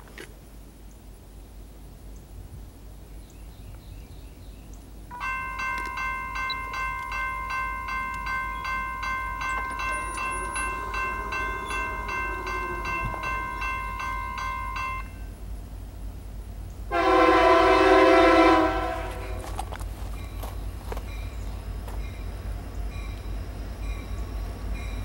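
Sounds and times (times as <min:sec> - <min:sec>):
electronic crossing bells ringing: 0:05.1 - 0:15.4.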